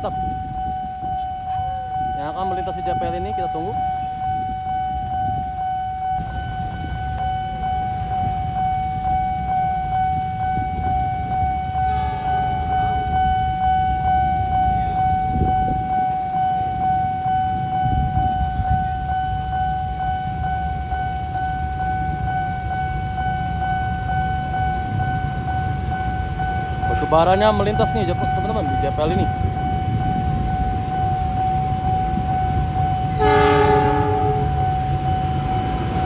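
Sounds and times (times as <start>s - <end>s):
diesel locomotive rumble: 0.0s - 36.0s
level crossing warning tone: 0.0s - 36.0s
motorbikes idling: 20.2s - 36.0s.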